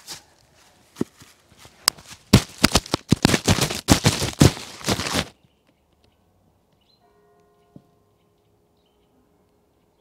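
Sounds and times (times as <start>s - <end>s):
crackling rustle on microphone: 1.2s - 5.4s.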